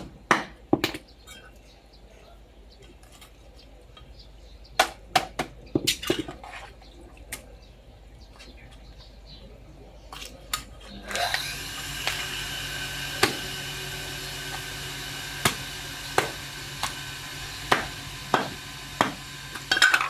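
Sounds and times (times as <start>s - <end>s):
machine hum with faint whine: 10.9s - 20.0s
cleaver chopping fish: 13.2s - 13.5s, 15.4s - 17.0s, 17.7s - 19.7s.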